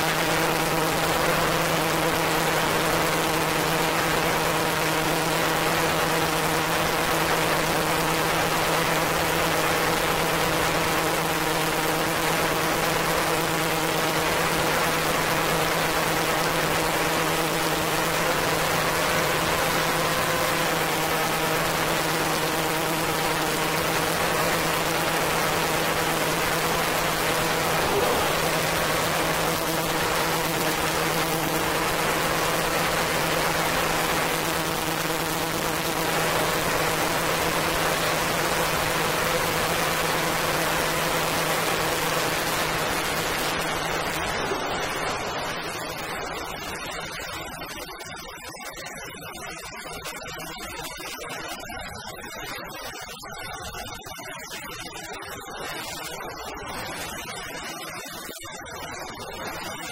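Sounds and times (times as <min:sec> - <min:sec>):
low synthesizer drone: 0:17.5 - 0:34.4.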